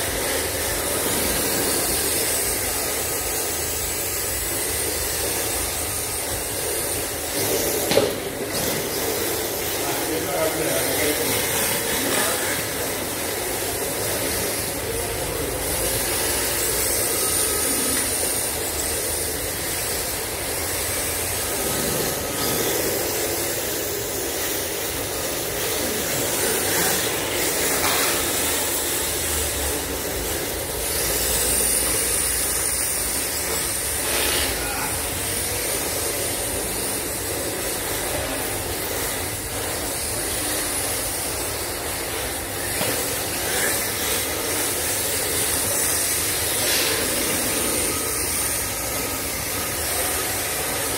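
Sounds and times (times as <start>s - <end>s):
high motor whine: 0.0s - 50.9s.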